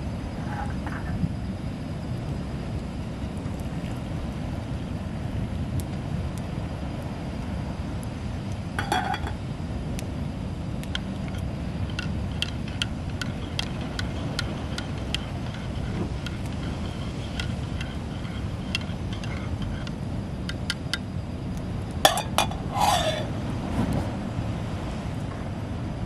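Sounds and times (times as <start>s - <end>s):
low rumble of surf: 0.0s - 26.0s
pot clattering on stove: 8.8s - 9.4s, 22.1s - 23.3s
spoon clinking against ceramic mug: 22.1s - 23.3s.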